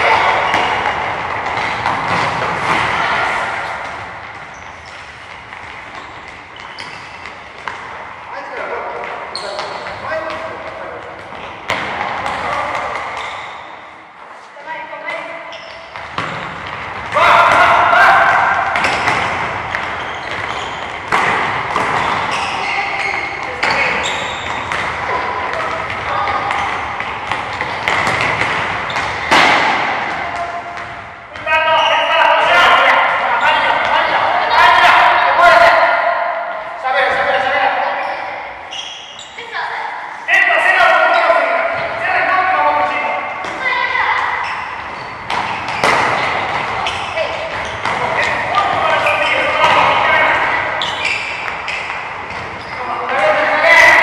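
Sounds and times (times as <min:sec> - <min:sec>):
soccer balls bouncing off floor: 0:00.0 - 0:13.6, 0:15.6 - 0:35.3, 0:41.1 - 0:42.0, 0:42.8 - 0:54.0
children's voices echoing: 0:24.9 - 0:28.4, 0:29.1 - 0:38.3, 0:39.3 - 0:44.9
children's voices: 0:43.5 - 0:44.5.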